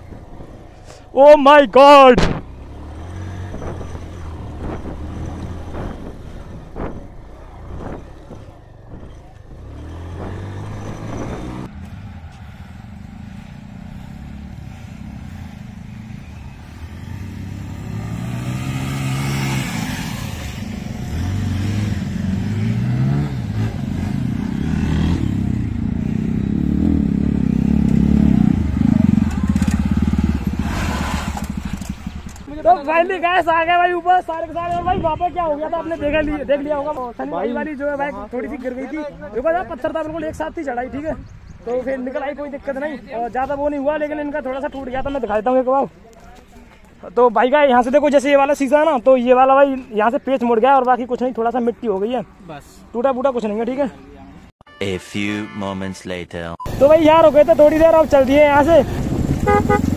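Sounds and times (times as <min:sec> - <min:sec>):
motorcycles revving: 0:00.0 - 0:39.4, 0:56.6 - 0:59.9
motorcycle riding over rough ground: 0:27.4 - 0:32.9.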